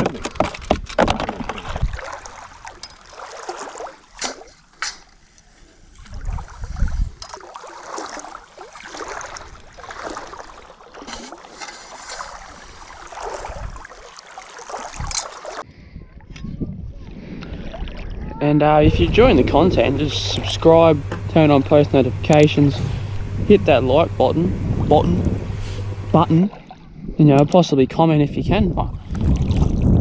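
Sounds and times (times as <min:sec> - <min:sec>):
water sloshing around legs: 0:01.3 - 0:15.7
low thump: 0:22.6 - 0:23.9.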